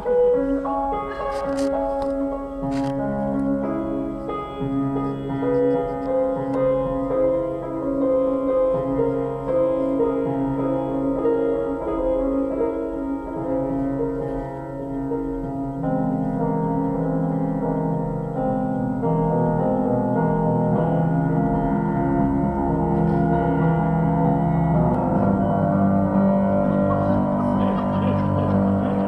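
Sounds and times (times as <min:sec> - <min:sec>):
piano music: 0:00.0 - 0:29.0.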